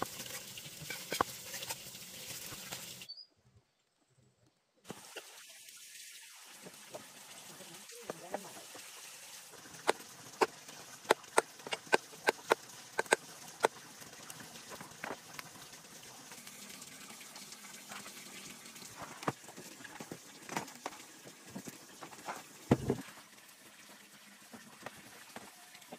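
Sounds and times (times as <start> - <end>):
cleavers chopping on wood: 11.1 - 13.2.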